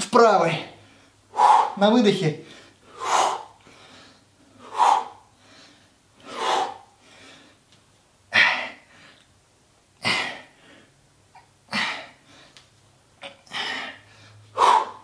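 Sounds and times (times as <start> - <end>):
man exhaling forcefully: 1.3 - 1.8, 2.9 - 3.6, 4.6 - 5.3, 13.5 - 15.0.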